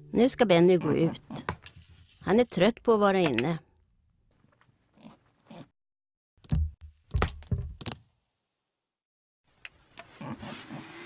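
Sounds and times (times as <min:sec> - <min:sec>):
knocking thumps: 0:06.4 - 0:08.0.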